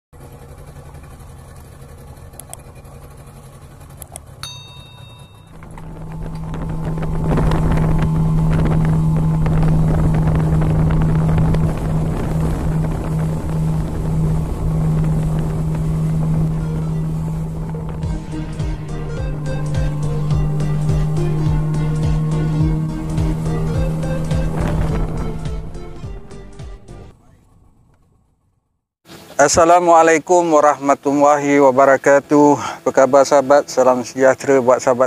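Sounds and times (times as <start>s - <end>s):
motorboat engine running: 0.1s - 35.0s
water and wind rushing: 0.2s - 27.1s
short high tone: 4.4s - 10.7s, 13.2s - 27.1s.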